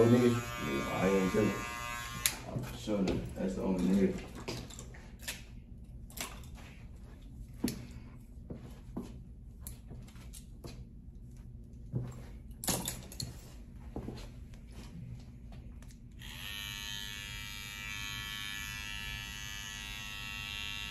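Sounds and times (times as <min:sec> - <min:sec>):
barber tools clicking: 0:02.2 - 0:02.5.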